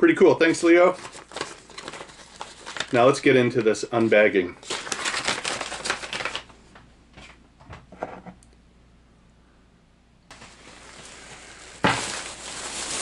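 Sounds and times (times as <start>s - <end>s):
plastic bag crinkling: 0.5s - 6.5s, 10.3s - 13.0s.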